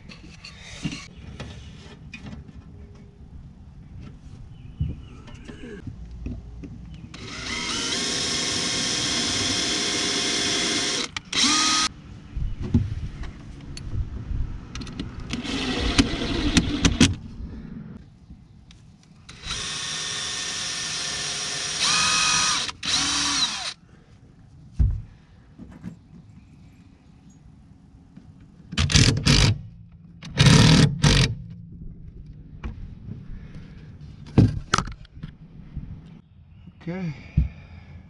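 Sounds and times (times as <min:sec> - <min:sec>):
cordless drill boring into wood: 0:07.2 - 0:11.9, 0:15.4 - 0:17.0, 0:19.3 - 0:23.8.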